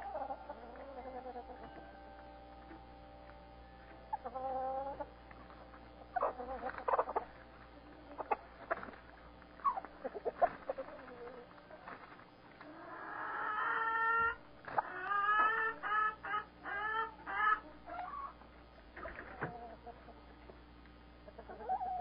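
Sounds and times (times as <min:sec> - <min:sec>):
hens clucking: 0:00.0 - 0:03.3, 0:03.9 - 0:20.6, 0:21.2 - 0:22.0.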